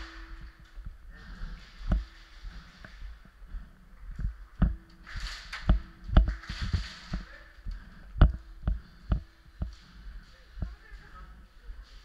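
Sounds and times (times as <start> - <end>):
footsteps: 0.0 - 12.0
camera shaking thumps: 3.5 - 9.7.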